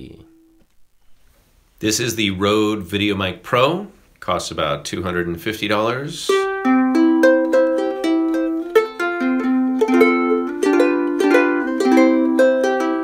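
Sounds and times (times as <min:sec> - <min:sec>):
ukulele playing: 0:06.3 - 0:13.0.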